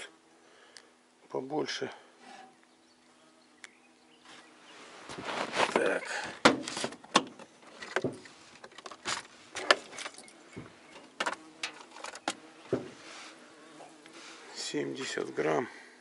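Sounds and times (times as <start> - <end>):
handling rustle: 4.2 - 14.4.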